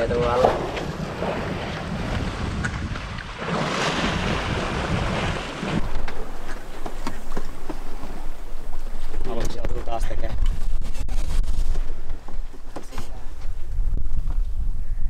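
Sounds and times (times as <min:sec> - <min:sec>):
water rushing along hull: 0:00.0 - 0:10.9
wind buffeting microphone: 0:00.0 - 0:15.0.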